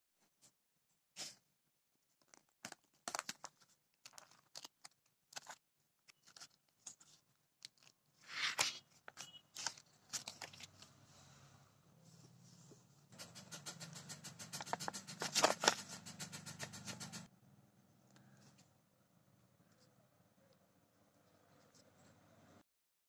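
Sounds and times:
paper pages rustling: 0:02.0 - 0:11.0, 0:13.1 - 0:17.3.

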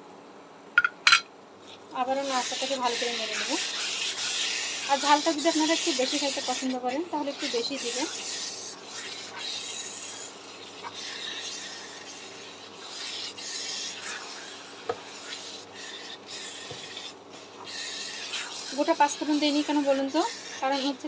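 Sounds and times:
spatula scraping wok: 0:02.0 - 0:21.0.

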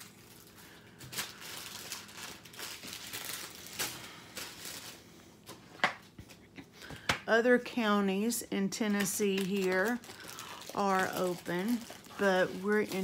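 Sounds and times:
plastic crinkling and rustling: 0:00.0 - 0:05.7, 0:08.8 - 0:13.0.

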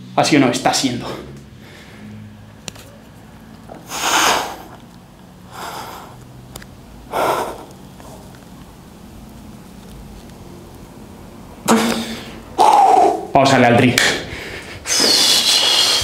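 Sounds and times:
man's forceful breaths: 0:03.8 - 0:04.8, 0:05.5 - 0:06.2, 0:07.1 - 0:08.3, 0:14.0 - 0:16.0.

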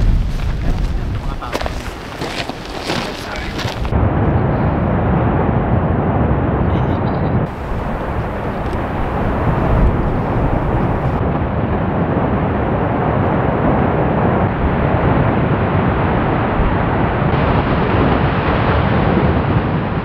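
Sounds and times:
lava fountaining and rushing: 0:07.4 - 0:20.0.

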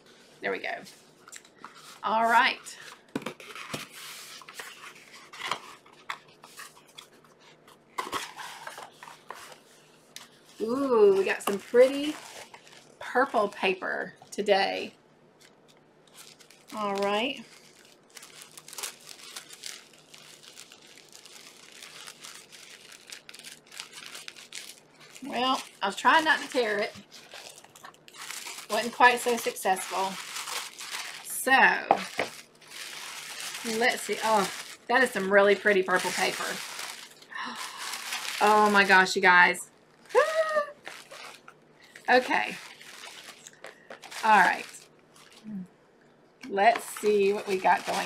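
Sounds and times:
tissue paper crinkling: 0:00.0 - 0:13.6, 0:15.4 - 0:45.5, 0:46.8 - 0:48.0
cardboard rustling and scraping: 0:01.7 - 0:12.9.

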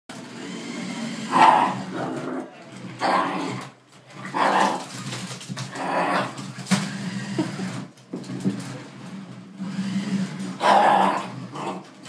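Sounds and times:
dog growling: 0:00.4 - 0:05.1, 0:05.7 - 0:07.8, 0:09.6 - 0:12.0.

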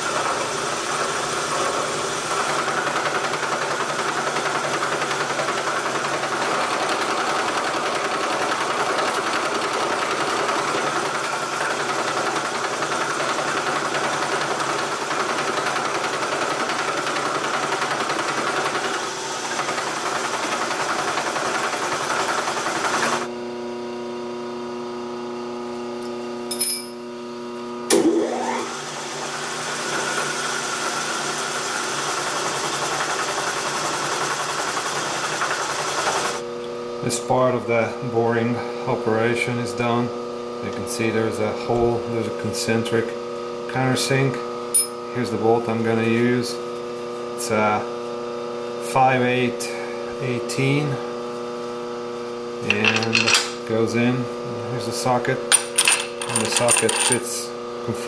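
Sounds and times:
milling machine cutting metal: 0:00.0 - 0:23.3.

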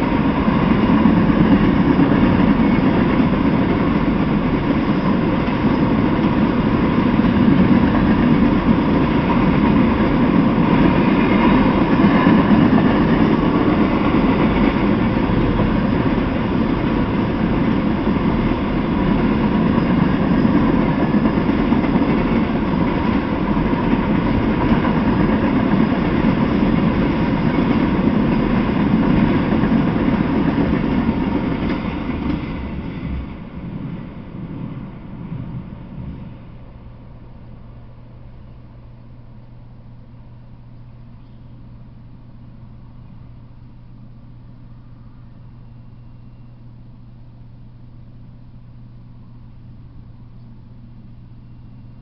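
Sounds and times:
steel wheels rumbling on rails: 0:00.0 - 0:40.4.

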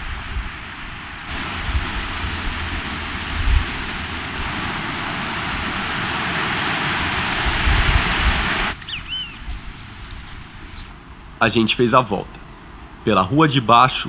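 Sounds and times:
steady rushing hiss: 0:00.0 - 0:11.0
low rumbling thumps: 0:01.3 - 0:06.4.

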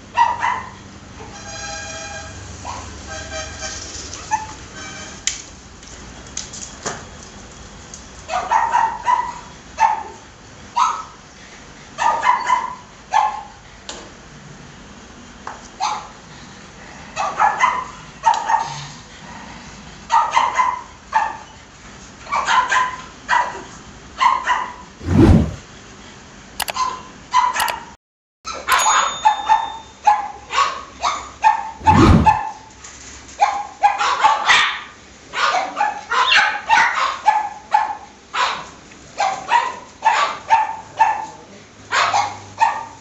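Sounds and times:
dog barking: 0:00.2 - 0:00.8, 0:08.3 - 0:10.2, 0:10.8 - 0:11.2, 0:12.0 - 0:13.5, 0:17.2 - 0:18.8, 0:20.1 - 0:21.4, 0:22.3 - 0:23.6, 0:24.2 - 0:24.8, 0:29.5 - 0:32.4, 0:33.4 - 0:43.0.

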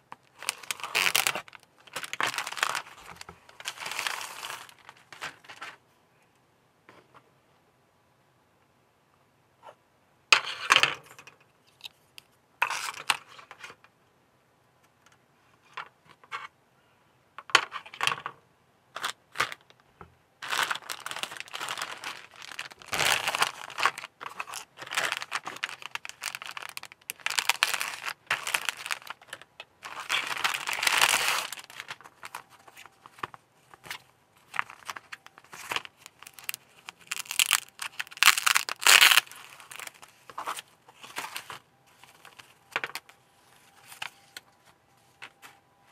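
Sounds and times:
plastic bag crinkling: 0:00.1 - 0:05.6, 0:20.4 - 0:43.1.

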